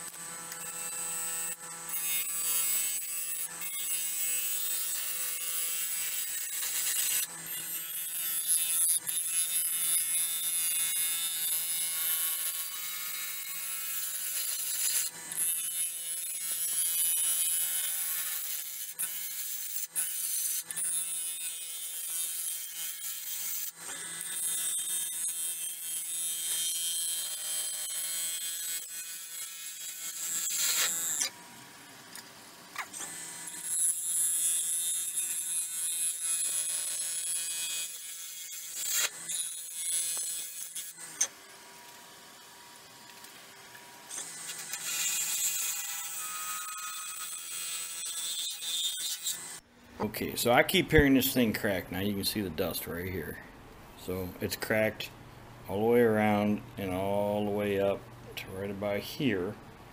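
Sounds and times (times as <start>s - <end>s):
gouge shearing wood: 27.9s - 31.3s.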